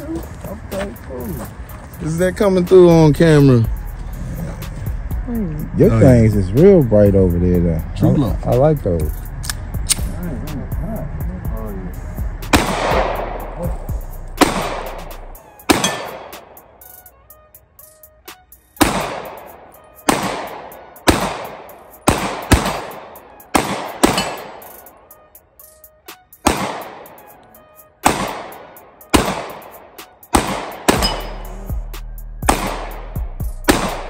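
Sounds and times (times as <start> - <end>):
pistol shots echoing: 12.5 - 13.5, 14.4 - 15.0, 15.7 - 16.8, 18.8 - 24.9, 26.4 - 31.7, 32.4 - 34.0.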